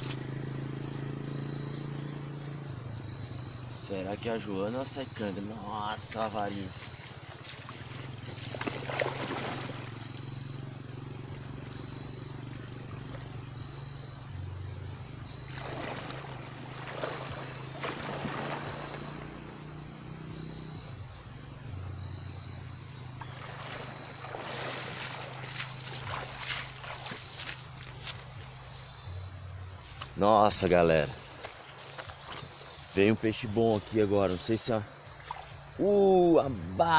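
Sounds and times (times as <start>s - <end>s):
high-pitched insect chorus: 0.0s - 36.9s
wading and splashing in water: 5.0s - 36.4s.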